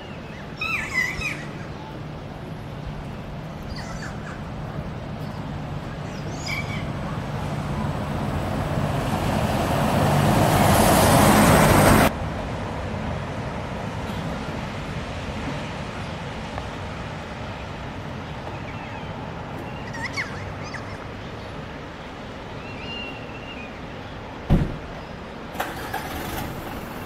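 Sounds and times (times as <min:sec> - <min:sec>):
parrots screeching: 0:00.6 - 0:01.5
low engine hum: 0:01.4 - 0:20.9, 0:25.5 - 0:27.0
vehicle passing: 0:03.4 - 0:13.8.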